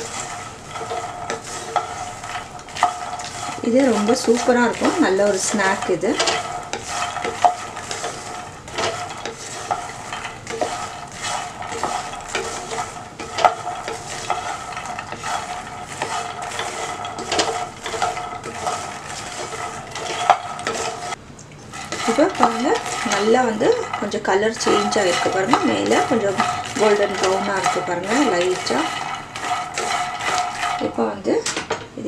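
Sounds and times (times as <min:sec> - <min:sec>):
seeds rustling and knocking: 0:00.0 - 0:31.8
spatula scraping a pan: 0:00.0 - 0:31.9.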